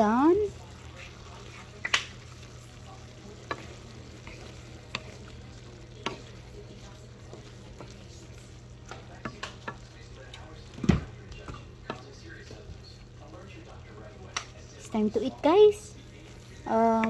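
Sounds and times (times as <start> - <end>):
food sizzling in a frying pan: 0.0 - 17.0
spatula knocking in a pan: 5.9 - 6.4, 8.9 - 9.9.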